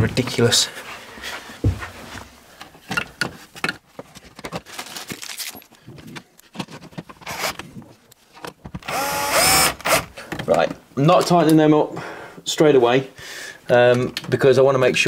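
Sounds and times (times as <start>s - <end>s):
cordless drill whirring: 7.3s - 7.6s, 8.8s - 10.1s.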